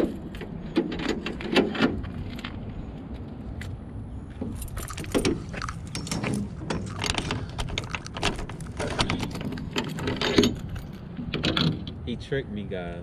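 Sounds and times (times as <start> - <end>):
keys and latch jingling: 4.4 - 11.8.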